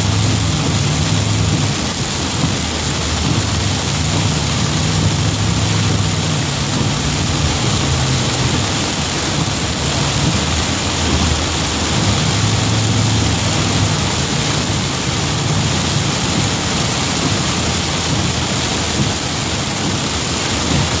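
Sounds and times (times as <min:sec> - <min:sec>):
heavy rain on car: 0:00.0 - 0:21.0
low car hum: 0:00.0 - 0:21.0
tyres hissing on wet road: 0:00.0 - 0:21.0.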